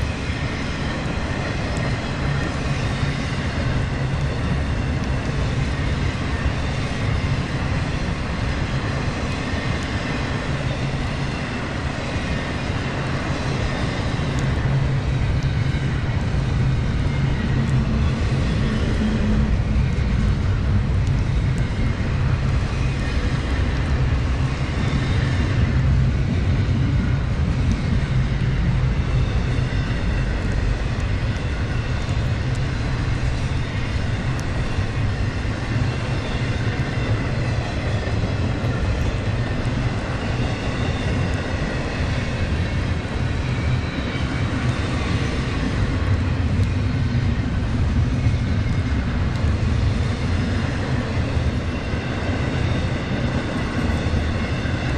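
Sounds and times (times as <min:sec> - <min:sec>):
freight train rumbling past: 0:00.0 - 0:54.9.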